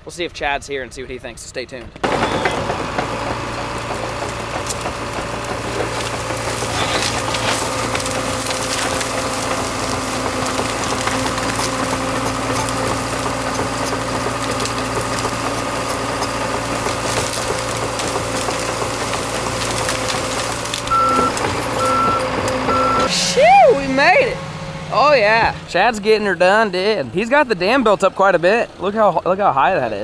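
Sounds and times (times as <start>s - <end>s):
bulldozer diesel engine running: 1.7s - 30.0s
branches cracking: 3.3s - 21.9s
backup alarm beeping: 20.9s - 23.2s.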